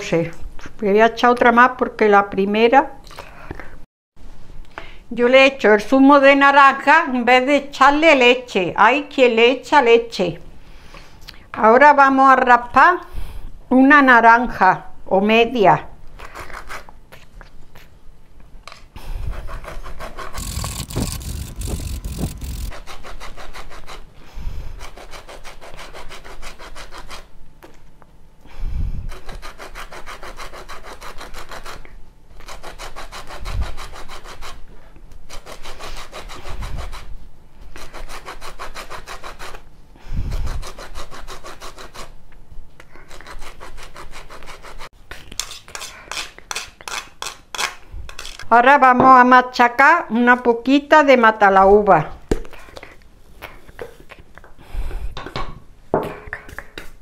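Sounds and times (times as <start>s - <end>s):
peel rasping on metal grater: 19.3s - 24.1s, 24.8s - 27.3s, 29.1s - 34.6s, 35.3s - 37.1s, 37.8s - 39.6s, 40.3s - 42.1s, 43.0s - 48.4s.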